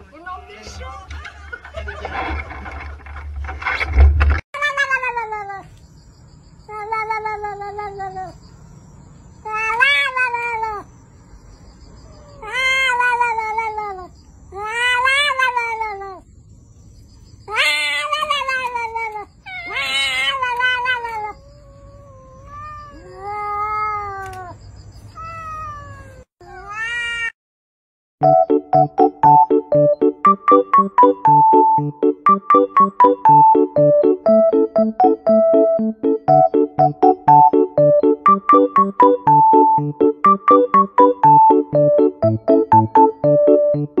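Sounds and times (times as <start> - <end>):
cat meowing: 9.5 - 10.9, 12.1 - 16.2, 17.5 - 24.6, 25.2 - 27.4.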